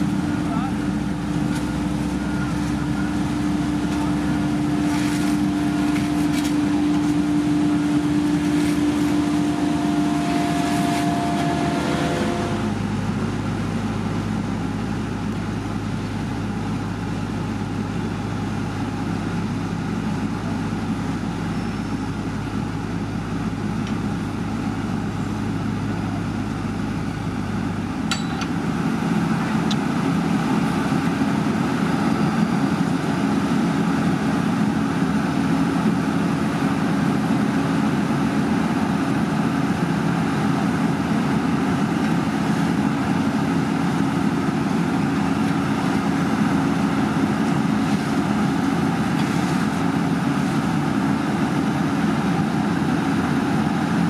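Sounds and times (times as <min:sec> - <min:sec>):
low hum: 0:00.0 - 0:35.1
diesel engine of heavy machinery: 0:00.0 - 0:54.0.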